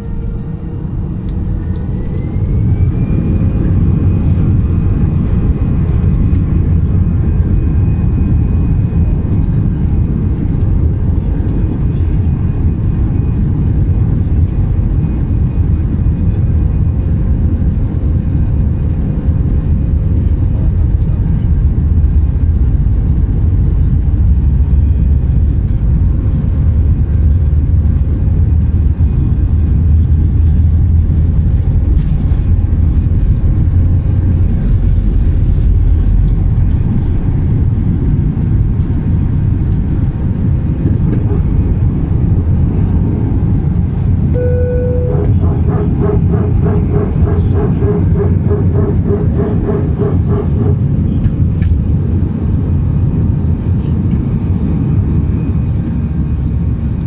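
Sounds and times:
jet engines at takeoff thrust: 0.0 - 57.0
low runway rumble: 0.0 - 57.0
thin engine tone: 44.2 - 50.8.

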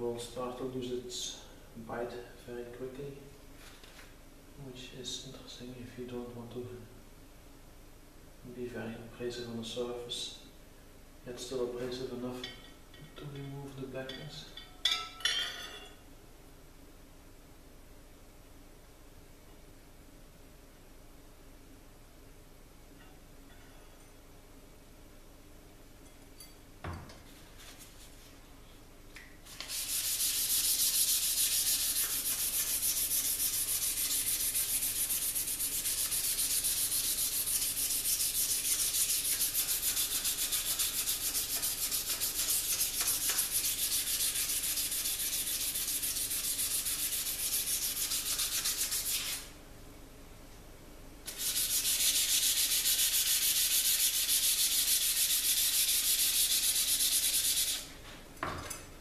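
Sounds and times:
sandpaper rubbing on steel blade: 29.5 - 49.5, 51.3 - 57.9.

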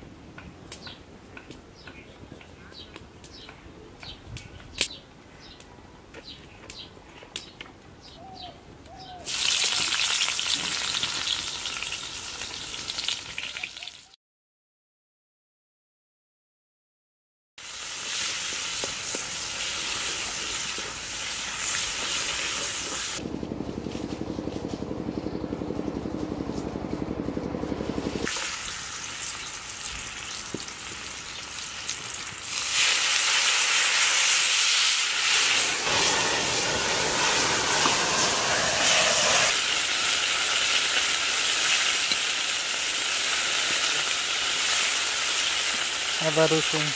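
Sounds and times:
hot oil sizzling: 9.3 - 14.0, 17.6 - 23.2, 28.2 - 46.9
low pulsing rumble: 23.2 - 28.3.

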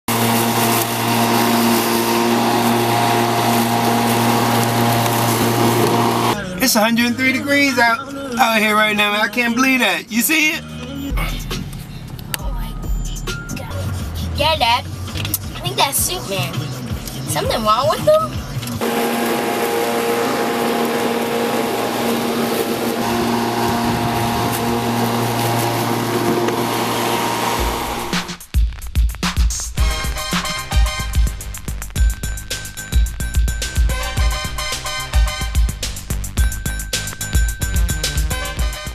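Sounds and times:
electric lawn mower running: 0.0 - 6.4, 18.8 - 28.4.

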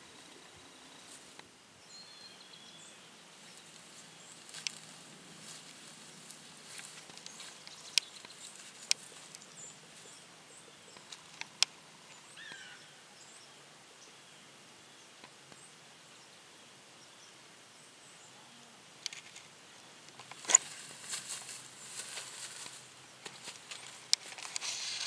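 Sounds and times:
bird chirp: 1.8 - 18.6
rustling in dry leaves: 3.4 - 10.2, 19.1 - 25.0
sharp clicks: 4.6 - 4.8.

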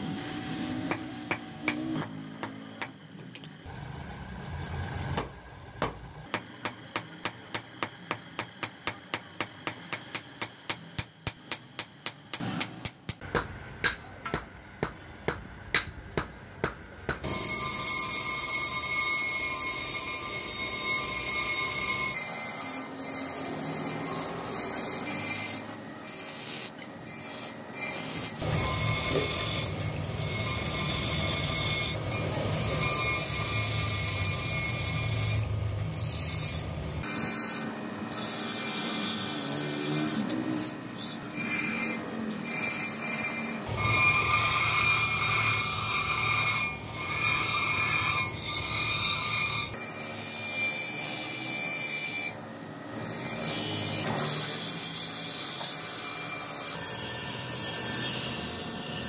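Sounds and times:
knife grinding on grinding wheel: 17.2 - 59.0.

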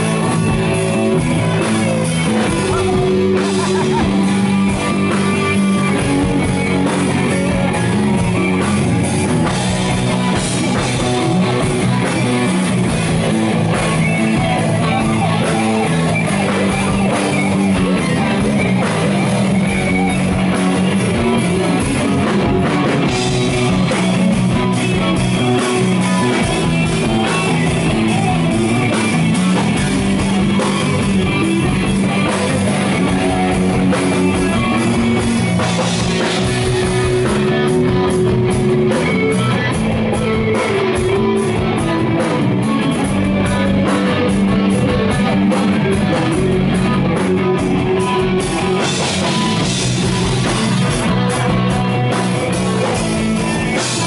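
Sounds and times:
rock band playing live: 0.0 - 54.0.

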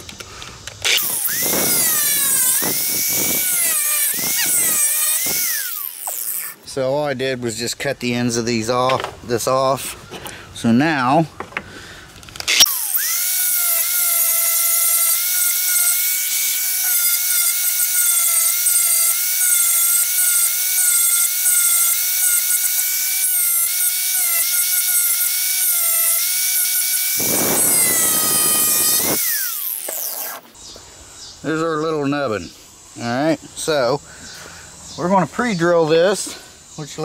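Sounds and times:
angle grinder grinding wood: 0.8 - 6.7, 12.4 - 30.6.

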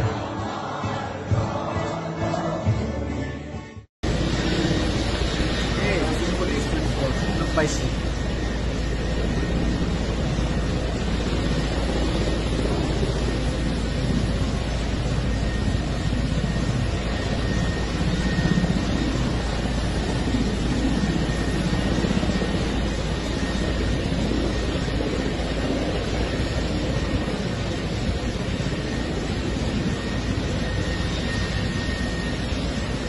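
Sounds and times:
helicopter engines and rotor: 4.0 - 33.0.

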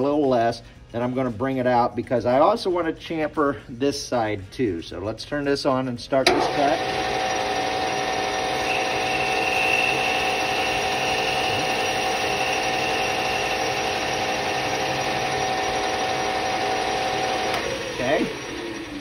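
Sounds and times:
metal lathe motor and gear whine: 6.2 - 19.0
faint high squeal: 8.1 - 19.0.

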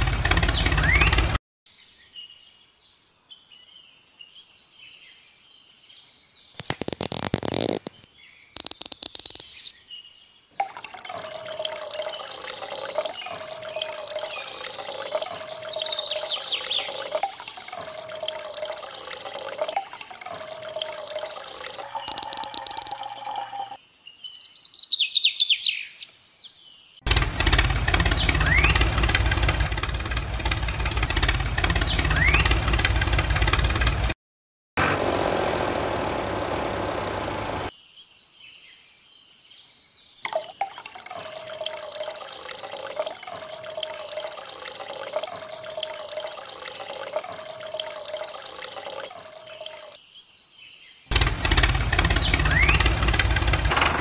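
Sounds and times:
engine running: 0.0 - 1.4, 10.8 - 23.8, 27.1 - 34.2, 34.8 - 37.7, 51.1 - 54.0
birds chirping: 0.0 - 34.1, 37.0 - 53.7
running water hiss: 10.6 - 23.8, 40.3 - 50.0
small motor whining: 51.1 - 53.8.

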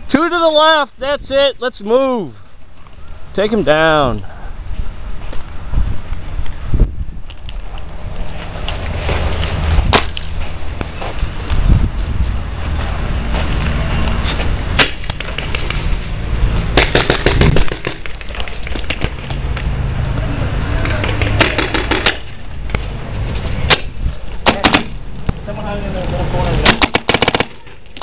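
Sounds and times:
steady low rumble: 4.2 - 27.2
paintball markers firing: 16.8 - 19.2, 20.8 - 22.4, 23.7 - 25.0, 26.6 - 28.0.

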